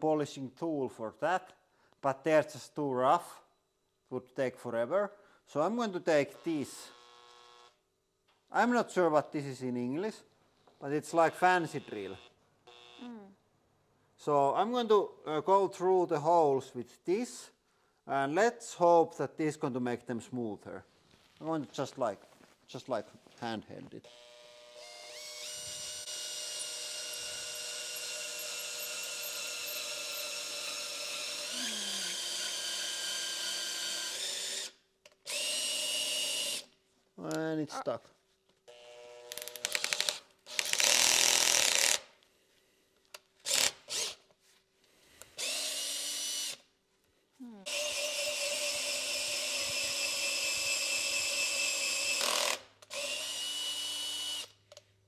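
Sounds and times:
power drill whining: 11.6 - 13.1, 24.1 - 36.7, 38.7 - 42.1, 43.4 - 44.2, 45.3 - 46.7, 47.7 - 54.6.

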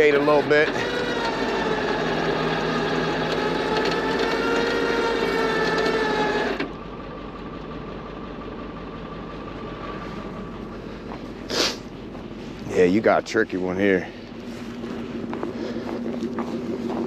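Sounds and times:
winch whining under load: 0.0 - 12.7.

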